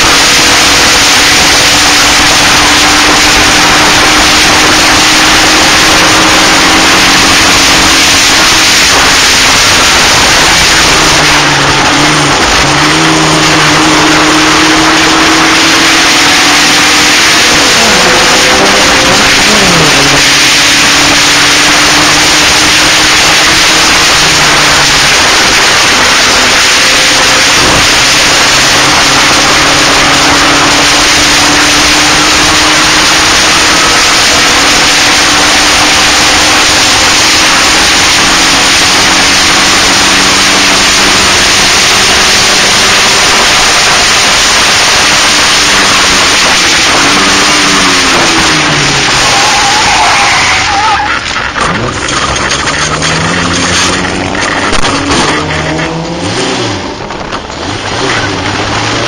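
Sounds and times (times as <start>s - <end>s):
racing car engine: 0.0s - 59.0s
wind noise on microphone: 54.1s - 59.0s.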